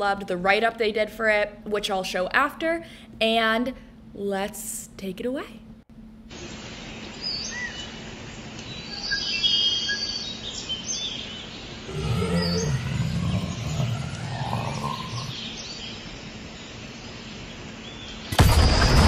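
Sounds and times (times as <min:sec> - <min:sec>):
steady ambient hiss: 0:00.0 - 0:18.4
low growl: 0:11.9 - 0:15.5.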